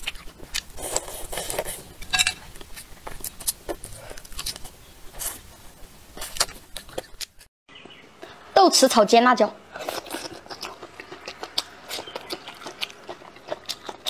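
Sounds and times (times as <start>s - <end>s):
biting and chewing: 0.0s - 5.4s, 6.1s - 7.5s, 9.7s - 14.0s.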